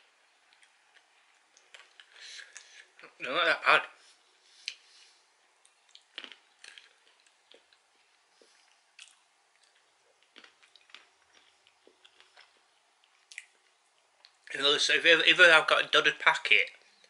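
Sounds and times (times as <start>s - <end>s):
peanuts crunching while chewed: 0.0s - 3.2s, 5.6s - 14.4s.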